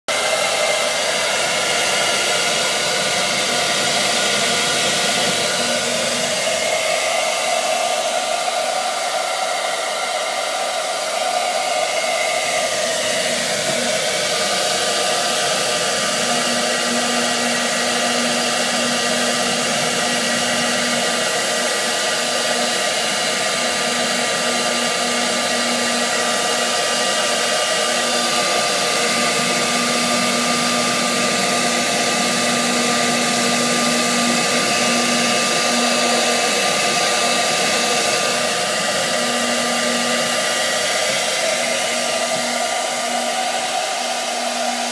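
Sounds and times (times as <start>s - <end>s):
hair dryer blowing air: 0.0s - 44.9s.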